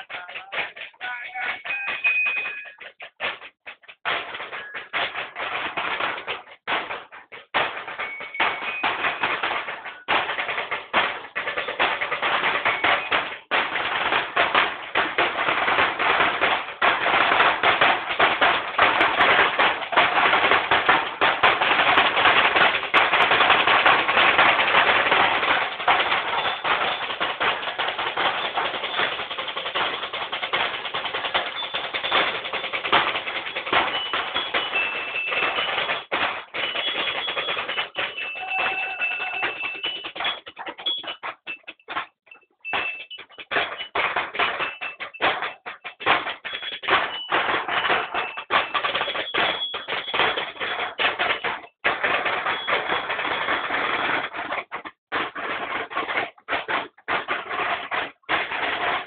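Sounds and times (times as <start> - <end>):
snare drums playing: 0.0 - 59.0.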